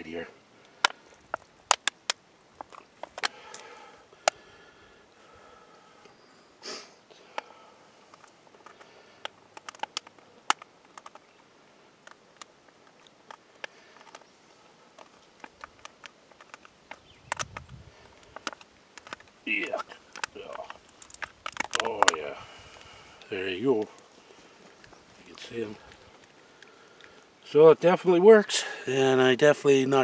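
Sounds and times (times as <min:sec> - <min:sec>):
aluminium plate clicks and crinkles: 0:00.6 - 0:04.4, 0:08.1 - 0:27.4
person sniffing: 0:06.6 - 0:07.8.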